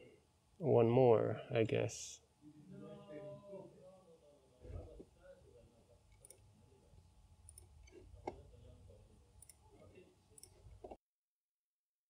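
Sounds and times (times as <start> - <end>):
low steady hum: 0.0 - 11.0
computer mouse clicks: 7.5 - 8.4.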